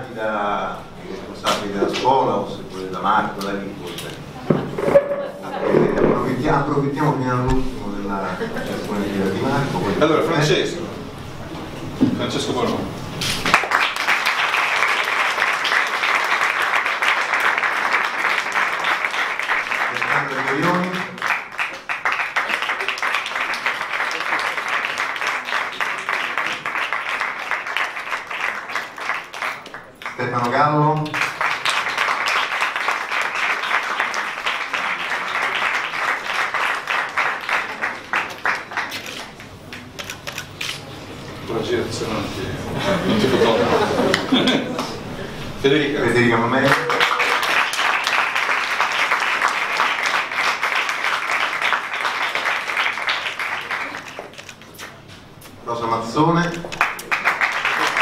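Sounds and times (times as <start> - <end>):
audience applauding: 13.4 - 40.1, 46.1 - 55.0, 56.6 - 58.0.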